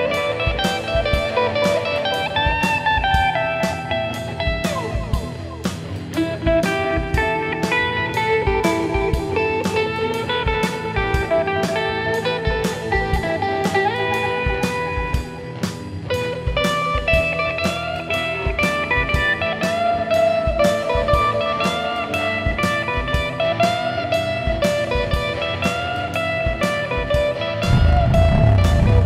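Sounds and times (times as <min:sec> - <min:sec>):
steady drum beat: 0:00.0 - 0:07.8, 0:27.1 - 0:29.0
blues guitar melody: 0:00.0 - 0:29.0.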